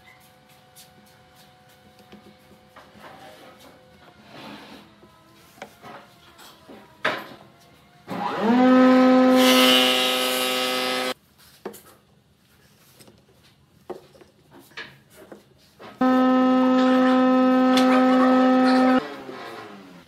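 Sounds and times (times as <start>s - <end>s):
motor-driven machine whine and hum: 16.0s - 19.8s.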